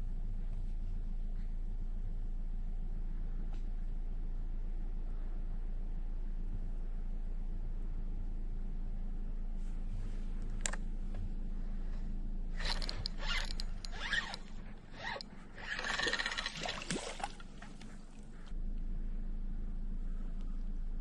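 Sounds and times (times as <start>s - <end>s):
fishing reel cranking: 12.6s - 17.0s.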